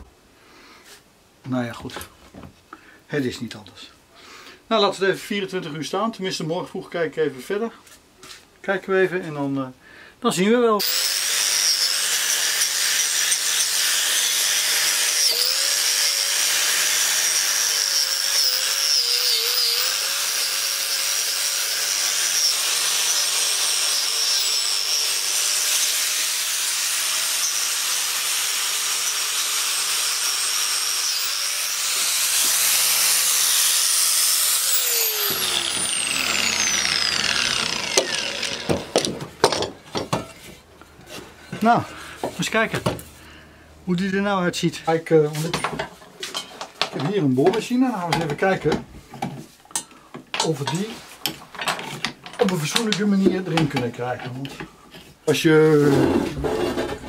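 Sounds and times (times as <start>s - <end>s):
angle grinder whining: 10.8s - 39.7s.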